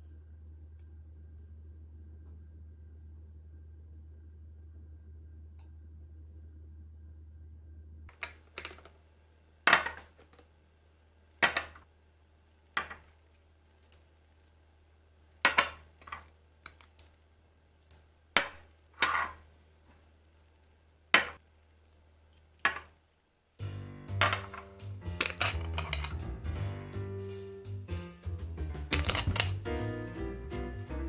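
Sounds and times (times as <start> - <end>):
glass jars clinking and knocking: 24.2 - 24.6, 25.2 - 26.2, 28.9 - 29.6
lids being screwed shut: 25.2 - 26.2.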